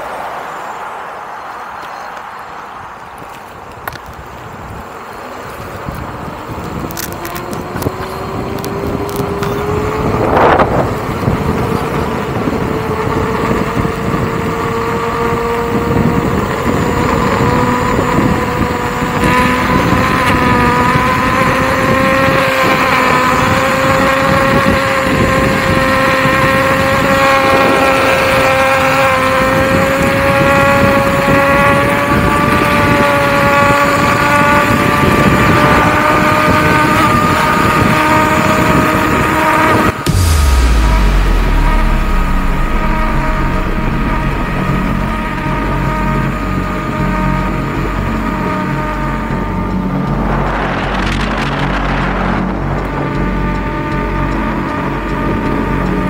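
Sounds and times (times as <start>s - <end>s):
road noise: 0.0s - 56.0s
wind noise: 2.6s - 56.0s.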